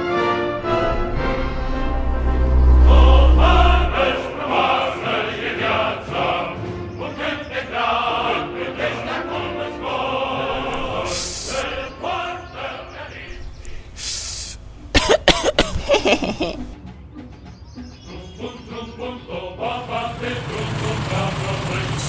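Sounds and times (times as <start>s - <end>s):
choir singing music: 0.0s - 22.0s
deep low rumble: 0.5s - 4.6s, 10.5s - 11.9s, 13.3s - 16.8s
short hiss: 10.8s - 11.9s, 13.7s - 14.9s.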